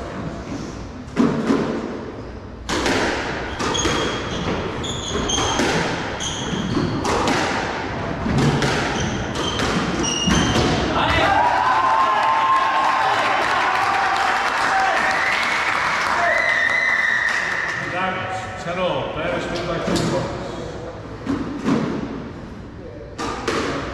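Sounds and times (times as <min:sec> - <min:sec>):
squash ball hitting rackets and walls: 0:01.1 - 0:11.3, 0:21.2 - 0:22.4, 0:23.2 - 0:23.9
shoes squeaking on wooden floor: 0:03.5 - 0:07.1, 0:08.9 - 0:10.8
crowd applauding and cheering: 0:11.2 - 0:17.8.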